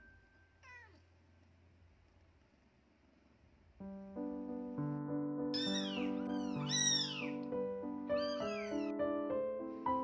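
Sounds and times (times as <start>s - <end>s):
piano music: 3.8s - 10.0s
kitten mewing: 5.6s - 7.4s, 8.2s - 8.9s.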